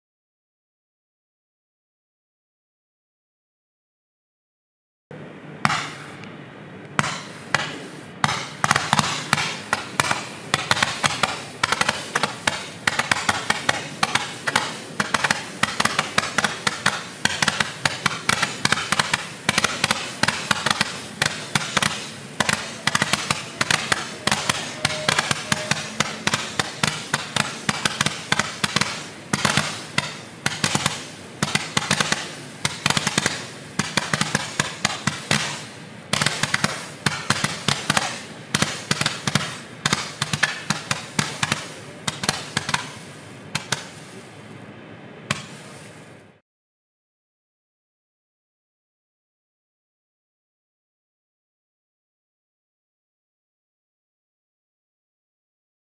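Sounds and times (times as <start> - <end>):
firework pops: 7.0 - 44.3, 45.3 - 45.9.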